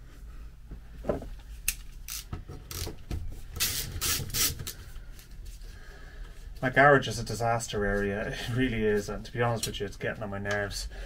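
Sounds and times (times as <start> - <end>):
socket ratchet clicking: 1.7 - 3.0.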